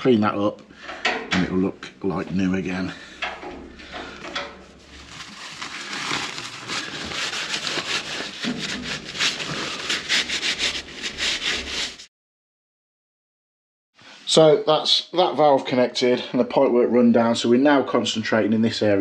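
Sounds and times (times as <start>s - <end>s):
cloth rubbing on metal pipe: 3.5s - 12.1s.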